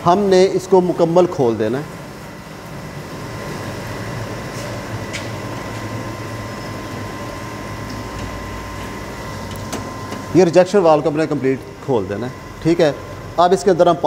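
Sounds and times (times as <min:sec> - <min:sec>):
high steady whine: 0:00.0 - 0:14.0
low machine hum: 0:00.0 - 0:14.0.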